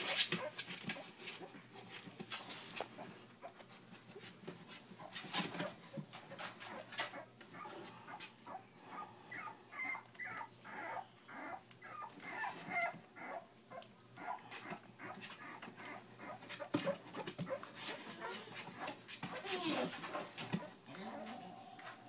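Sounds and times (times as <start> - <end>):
soft handling noises: 0.0 - 8.5
puppies whimpering: 6.3 - 21.7.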